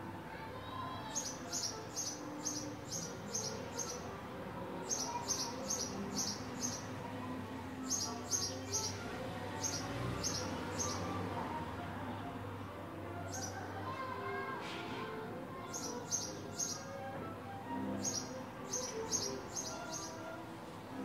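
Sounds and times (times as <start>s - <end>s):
sparrow chirping: 1.2s - 4.0s, 4.9s - 6.9s, 7.8s - 9.0s, 9.6s - 11.0s, 15.7s - 16.9s, 18.0s - 20.3s.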